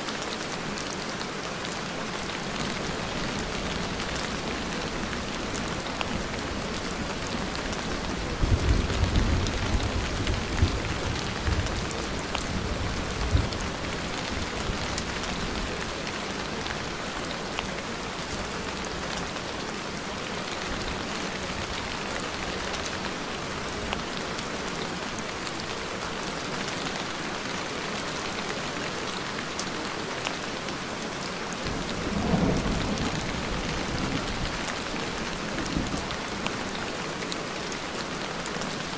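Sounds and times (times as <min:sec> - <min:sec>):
steady rain falling: 0:00.0 - 0:38.9
low rolls of thunder: 0:31.7 - 0:34.6.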